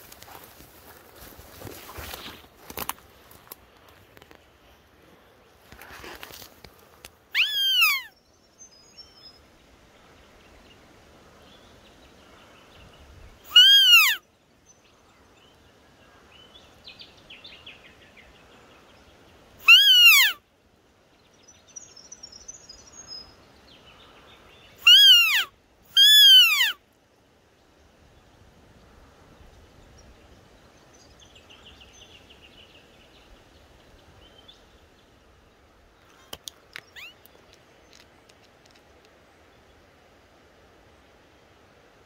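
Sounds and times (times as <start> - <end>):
deer-like bleat calls: 13.5 - 14.2.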